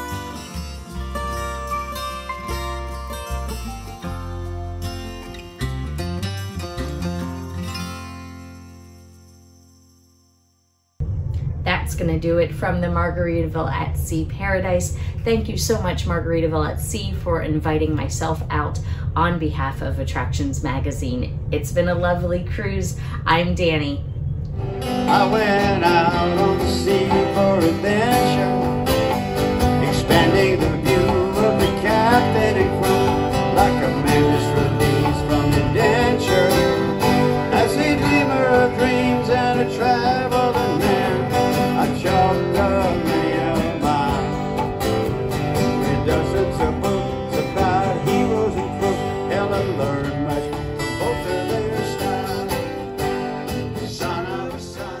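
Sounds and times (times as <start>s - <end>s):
acoustic guitars strumming: 0.0s - 10.3s, 24.5s - 55.0s
person singing: 25.0s - 44.7s, 45.6s - 52.9s, 53.6s - 55.0s
conga drums: 25.0s - 51.1s.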